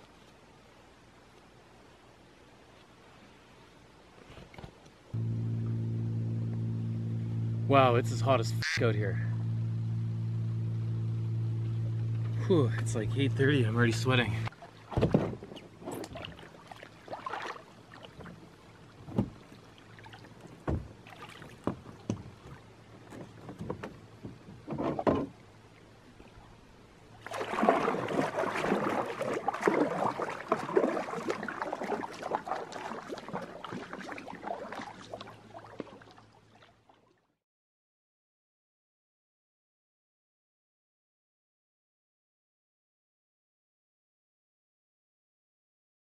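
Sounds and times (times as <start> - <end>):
water splashing against canoe: 11.5 - 25.5, 27.2 - 37.2
paddle strokes: 11.6 - 25.4, 27.2 - 37.2
knocks and bumps in canoe: 14.8 - 17.5, 19.0 - 19.5, 20.5 - 25.4, 27.2 - 36.1.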